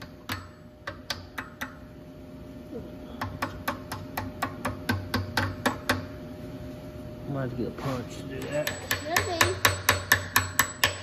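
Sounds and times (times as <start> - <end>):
hammer tapping steel punch: 0.0 - 1.8, 3.2 - 6.2, 8.4 - 11.0.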